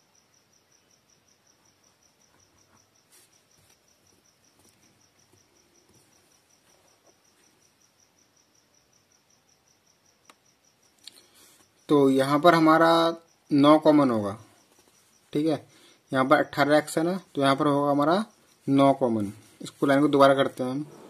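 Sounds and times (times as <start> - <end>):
cricket chirping: 0.0 - 21.0
pen scratching on paper: 19.4 - 21.0.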